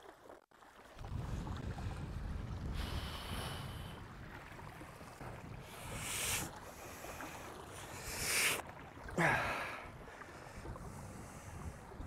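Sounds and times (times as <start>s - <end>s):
small waves lapping: 0.0s - 12.0s
wind buffeting microphone: 1.0s - 8.4s, 9.8s - 12.0s.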